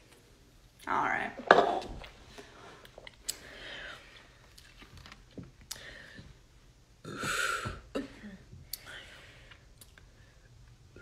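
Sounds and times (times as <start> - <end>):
woman breathing quietly: 2.3 - 4.6, 5.7 - 6.5.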